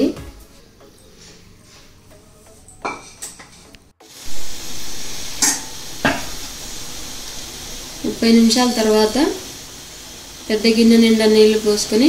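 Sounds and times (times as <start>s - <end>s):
gas burner hissing: 3.3s - 12.0s.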